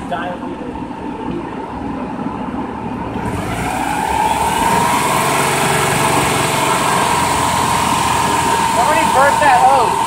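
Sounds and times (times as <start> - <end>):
hose spraying water: 4.7 - 10.0.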